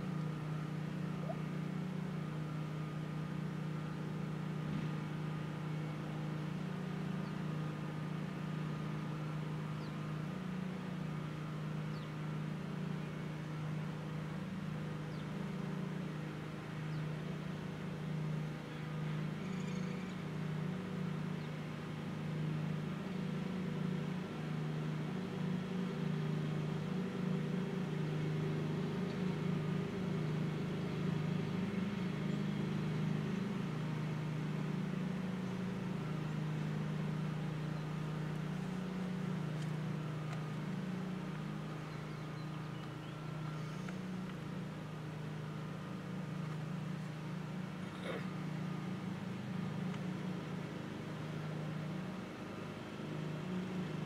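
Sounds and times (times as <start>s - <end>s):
warning siren steady tone: 0.0s - 21.6s.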